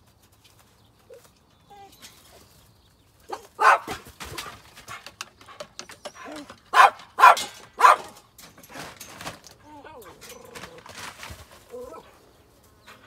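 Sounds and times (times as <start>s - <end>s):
dog barking: 3.3s - 4.0s, 6.7s - 8.2s.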